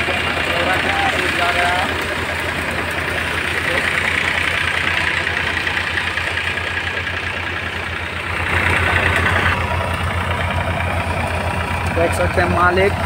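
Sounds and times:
thresher whirring: 0.0 - 13.0
tractor diesel engine running: 0.0 - 13.0.

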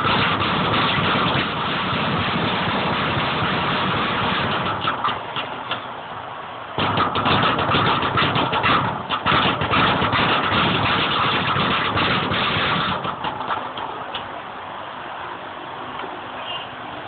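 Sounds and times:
speed bag rattling: 6.8 - 14.0.

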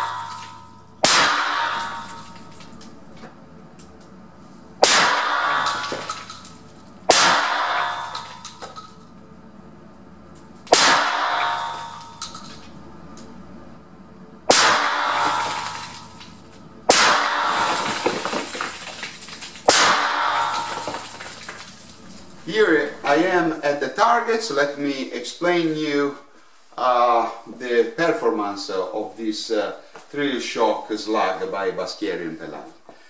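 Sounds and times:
shotgun shots echoing: 0.0 - 2.7, 4.8 - 8.6, 10.7 - 12.4, 14.5 - 16.2, 16.9 - 18.2, 19.7 - 21.3.

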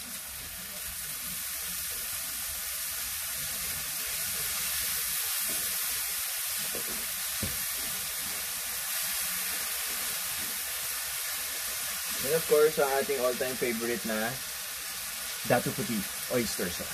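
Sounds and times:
food sizzling in a frying pan: 0.0 - 16.9.

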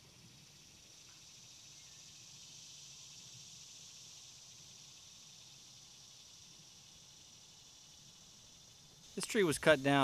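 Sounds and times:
high-pitched insect chorus: 0.0 - 10.0.

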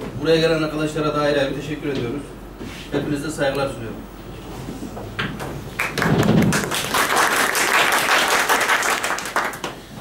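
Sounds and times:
people clapping: 5.8 - 10.0.

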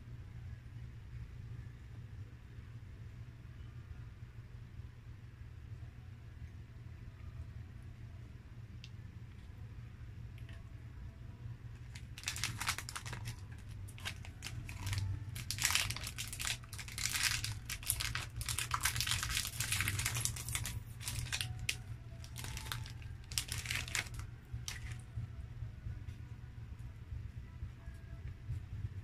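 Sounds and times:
plastic wrapper crinkling: 11.7 - 25.0.

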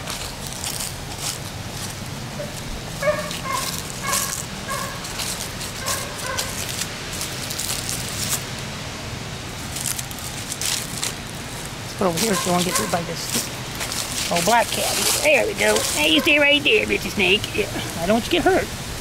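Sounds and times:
footsteps crunching dry leaves: 0.0 - 18.3
animal yipping: 2.4 - 5.1, 5.8 - 6.6, 12.3 - 13.1, 15.6 - 16.5.

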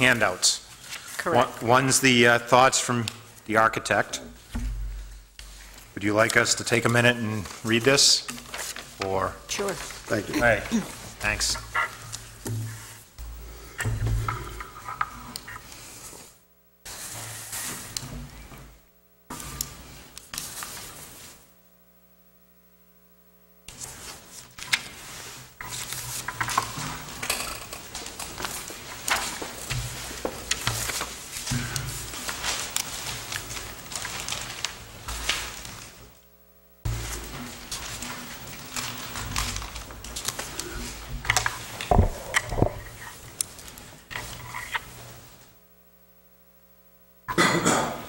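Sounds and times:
paper rustling and shuffling: 0.0 - 3.5, 4.4 - 13.0, 19.3 - 21.5, 23.7 - 36.2, 36.9 - 45.5.

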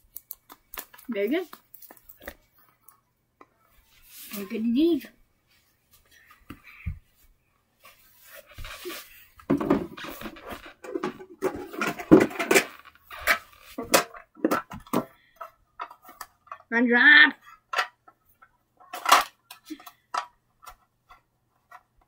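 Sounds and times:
handling a small box: 0.0 - 4.6
rustling and scuffing on carpet: 3.8 - 6.2, 6.8 - 9.4.

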